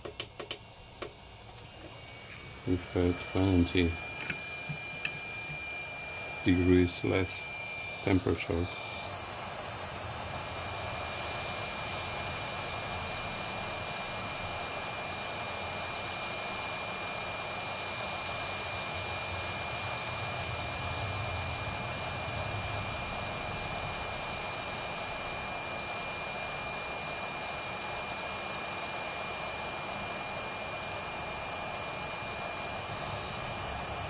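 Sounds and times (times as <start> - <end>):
thin high whine: 0.6 - 13.3
hot air blower rushing: 1.0 - 34.0.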